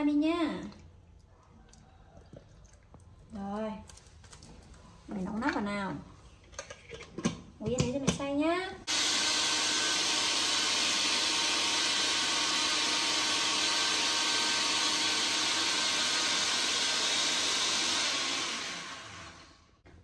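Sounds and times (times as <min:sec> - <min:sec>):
electric blender running: 0:08.9 - 0:19.8.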